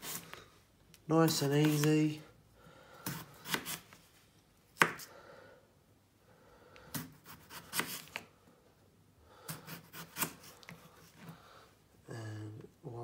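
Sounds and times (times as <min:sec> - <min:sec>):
knife slicing potato: 0:00.0 - 0:00.4, 0:01.2 - 0:02.0, 0:03.0 - 0:04.0, 0:04.7 - 0:05.1, 0:06.9 - 0:08.3, 0:09.4 - 0:11.3.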